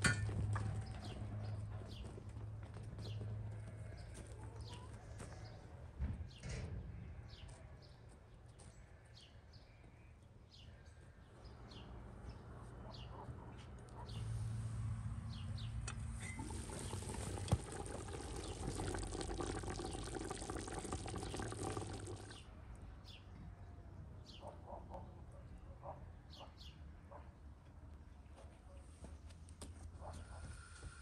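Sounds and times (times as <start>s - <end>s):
water pouring: 16.1s - 22.4s.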